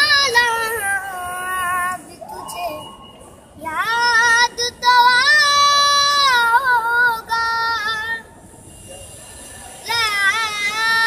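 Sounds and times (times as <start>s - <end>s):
girl singing unaccompanied: 0.0s - 2.9s, 3.6s - 8.3s, 9.8s - 11.0s.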